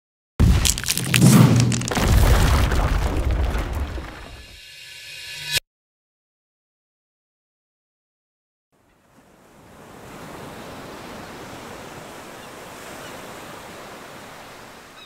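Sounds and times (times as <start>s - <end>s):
ocean waves on shore: 8.8s - 15.0s.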